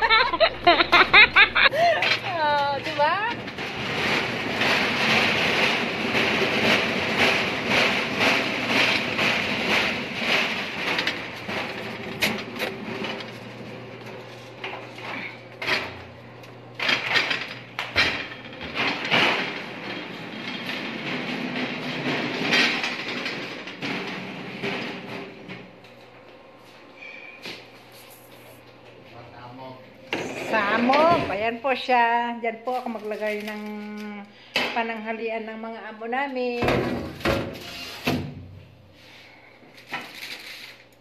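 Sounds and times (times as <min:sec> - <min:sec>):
trolley rattling over tiled floor: 0:00.1 - 0:25.8, 0:30.2 - 0:34.2, 0:39.8 - 0:41.0
metal clanks and knocks: 0:00.2 - 0:25.8.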